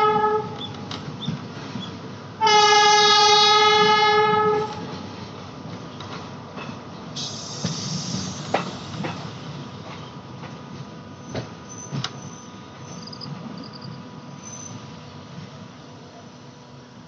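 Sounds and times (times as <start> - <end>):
train horn blast: 0.0 - 0.6, 2.4 - 4.9
moving train rumble: 0.0 - 17.0.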